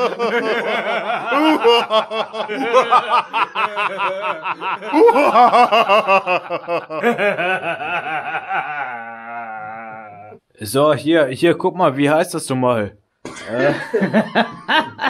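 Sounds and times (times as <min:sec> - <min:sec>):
men laughing hard: 0:00.0 - 0:10.4, 0:13.4 - 0:15.0.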